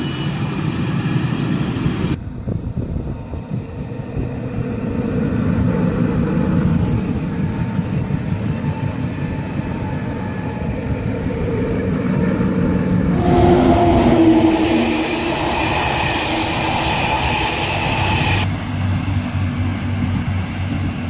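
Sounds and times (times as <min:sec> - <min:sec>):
train electric hum: 0:00.0 - 0:21.0
train wheels rumbling on rails: 0:00.0 - 0:21.0.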